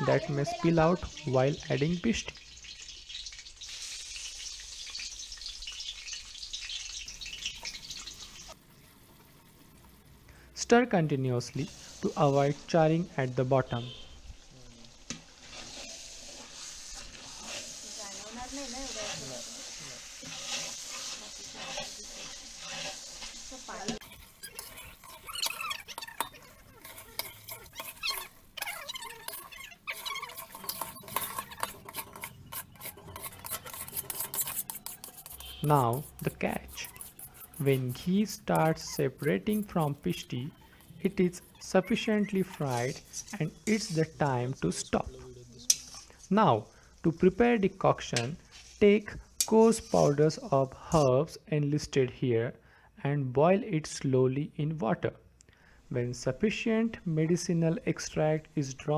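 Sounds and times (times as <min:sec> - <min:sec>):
pulp sizzling in frying pan: 0:00.0 - 0:51.4, 0:55.4 - 0:58.9
metal spatula scraping a wok: 0:11.2 - 0:14.2, 0:14.9 - 0:47.4, 0:48.0 - 0:51.4
metal on metal squeaks: 0:20.2 - 0:44.4.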